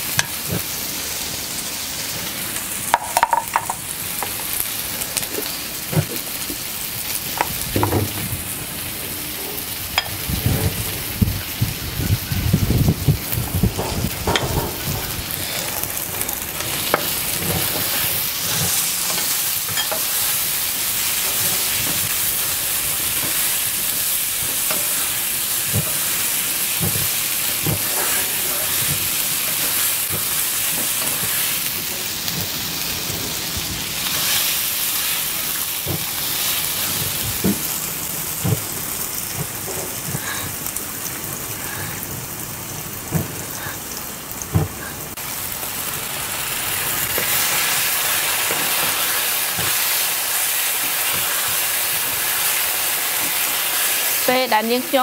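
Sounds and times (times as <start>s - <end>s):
ginger sizzling in oil: 0.0s - 55.0s
spatula knocking against pan: 3.0s - 3.8s.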